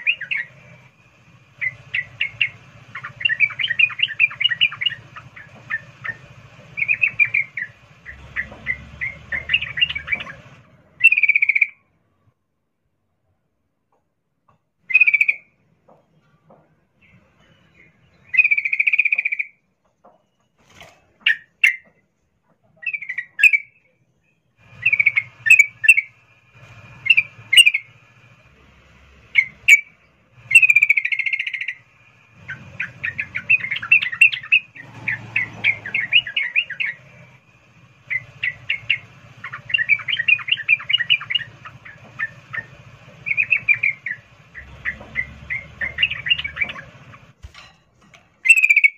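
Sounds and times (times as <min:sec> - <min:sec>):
bird calling: 0:00.0 - 0:11.8, 0:14.8 - 0:15.6, 0:17.0 - 0:19.6, 0:24.6 - 0:47.4, 0:48.4 - 0:48.9.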